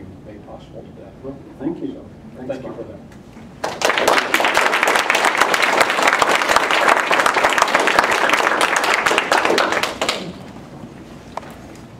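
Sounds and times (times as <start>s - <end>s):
audience applauding: 3.6s - 10.4s.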